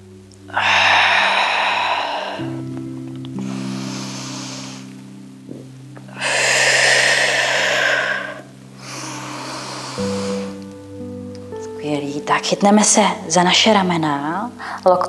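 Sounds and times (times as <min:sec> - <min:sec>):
soft music of low held notes: 0:00.0 - 0:15.0
deep slow breathing: 0:00.5 - 0:11.2.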